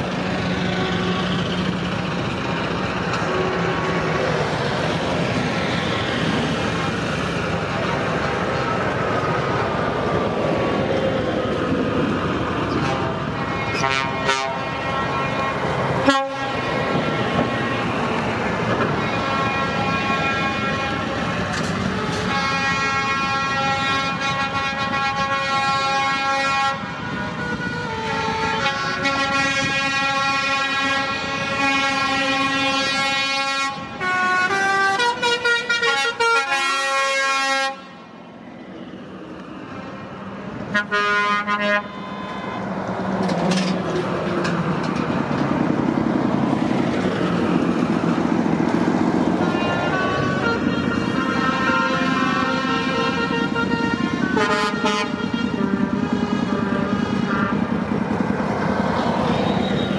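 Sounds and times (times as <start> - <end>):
truck horns sounding chords: 0.0 - 1.8, 12.7 - 18.0, 18.8 - 38.1, 40.6 - 42.7, 49.4 - 58.4
heavy trucks passing: 0.0 - 59.9.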